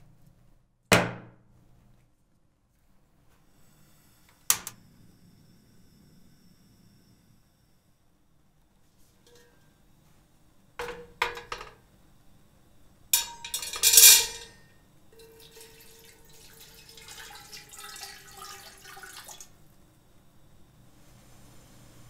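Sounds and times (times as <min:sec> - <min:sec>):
metal cookware clanking: 0:09.2 - 0:09.7, 0:10.8 - 0:11.8, 0:13.2 - 0:15.8
water pouring into metal pot: 0:15.2 - 0:19.6.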